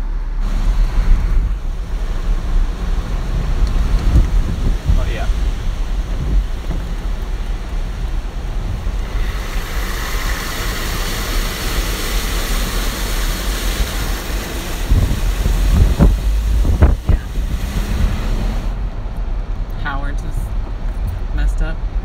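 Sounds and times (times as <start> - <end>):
storm wind: 0.0 - 22.0
tyres on wet road: 0.0 - 22.0
wind gusts buffeting microphone: 0.4 - 9.4, 14.7 - 19.6.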